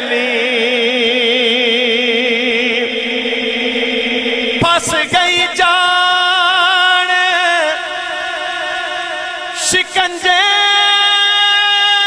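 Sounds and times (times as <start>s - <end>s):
man singing unaccompanied: 4.6s - 12.0s.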